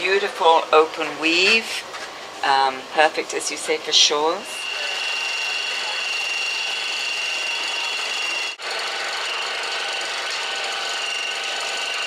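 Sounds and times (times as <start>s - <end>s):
leaf shredder whining and grinding: 4.5s - 12.0s.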